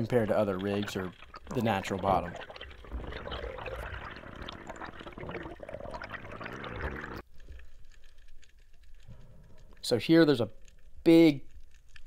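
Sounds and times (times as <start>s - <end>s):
underwater rushing and gurgling: 0.0s - 7.2s.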